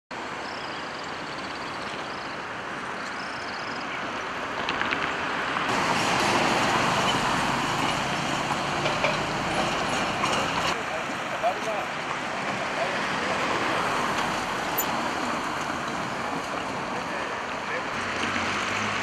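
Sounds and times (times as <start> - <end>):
road traffic noise: 0.1 - 19.0
vehicle passing by: 5.0 - 19.0.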